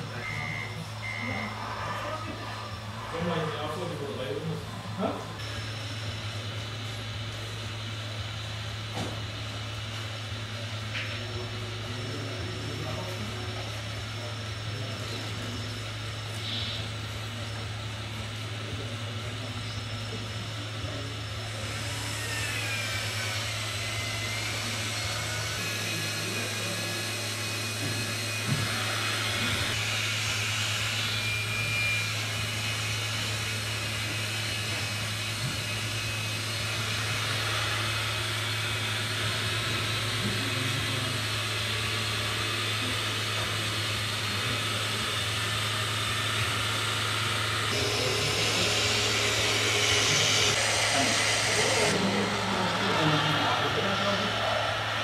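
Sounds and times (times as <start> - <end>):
small hydraulic pump whining: 0.0 - 55.0
low hum: 47.6 - 55.0.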